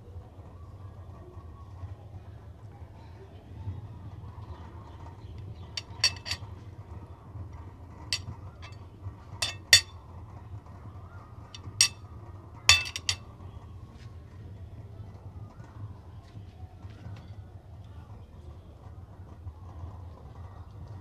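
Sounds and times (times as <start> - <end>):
cutlery clinking on plate: 5.8 - 6.4, 8.1 - 8.8, 9.4 - 9.9, 11.6 - 12.0, 12.7 - 13.2.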